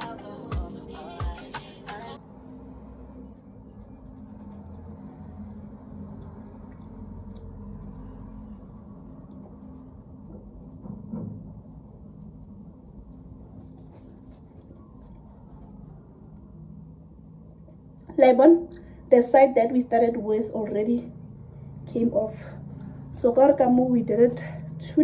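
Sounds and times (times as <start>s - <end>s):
steady low hum: 0.0s - 25.0s
fingertips scratching skin: 3.2s - 16.4s.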